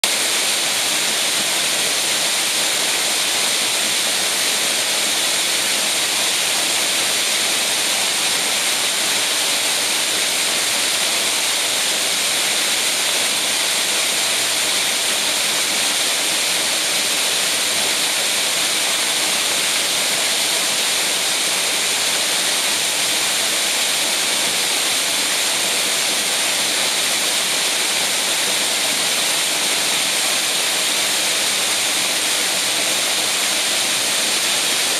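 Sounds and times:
waterfall splashing on rock: 0:00.0 - 0:34.9.

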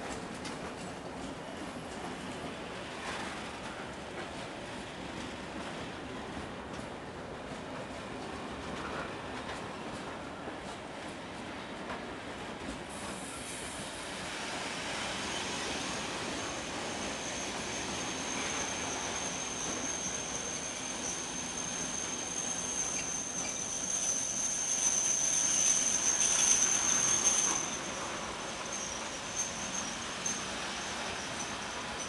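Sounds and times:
train wheels rattling on rail: 0:00.0 - 0:32.0
high metallic squeal: 0:16.9 - 0:32.0.

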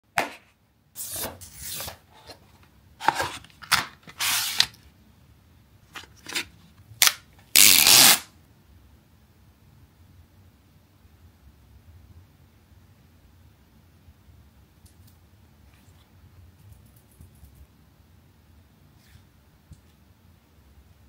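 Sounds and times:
cardboard box sliding and rustling: 0:04.1 - 0:04.7.

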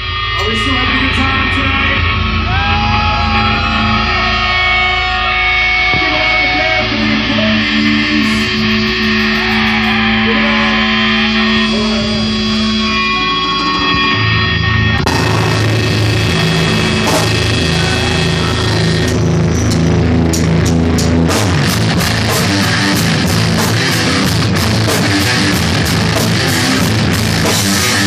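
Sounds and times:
electric guitars and bass: 0:00.0 - 0:28.0
drums and cymbals: 0:08.2 - 0:12.6, 0:15.0 - 0:28.0.

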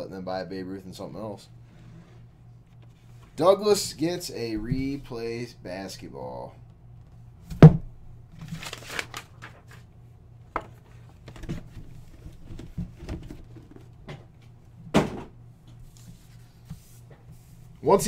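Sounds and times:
faint low hum: 0:00.0 - 0:18.0
paper rustling: 0:08.4 - 0:09.9
thump on table: 0:14.9 - 0:15.3.

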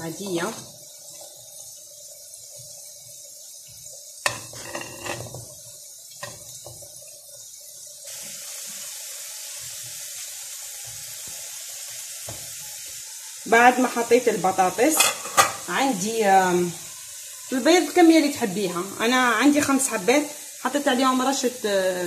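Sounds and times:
pot simmering with steady hiss: 0:00.0 - 0:22.0
spatula knocking and scraping: 0:04.3 - 0:05.6.

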